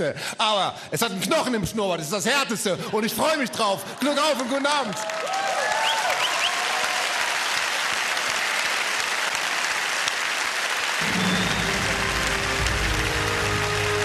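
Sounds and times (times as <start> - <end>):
audience applauding: 3.9 - 14.0.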